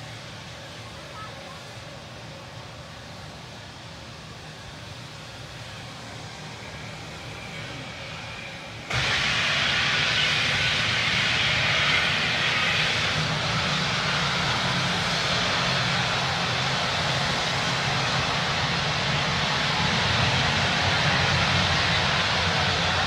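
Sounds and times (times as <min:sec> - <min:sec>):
gas hissing from a tank: 0:07.6 - 0:23.0.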